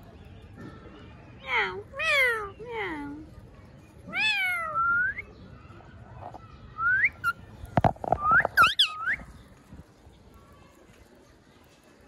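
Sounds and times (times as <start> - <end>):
parrot calling and whistling: 6.8 - 7.4, 8.2 - 9.3.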